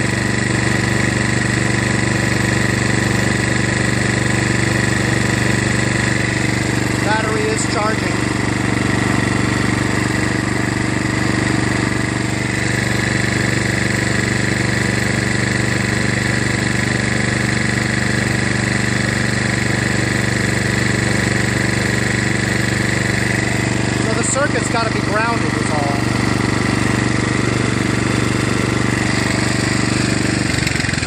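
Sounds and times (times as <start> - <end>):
lawn tractor engine running: 0.0 - 31.0.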